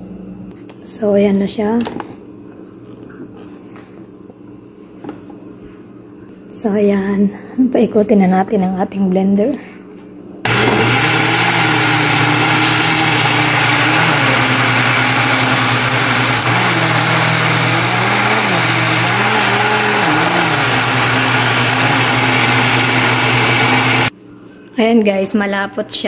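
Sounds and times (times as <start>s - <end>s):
blades churning thick batter: 10.5s - 24.1s
blender motor running: 10.5s - 24.1s.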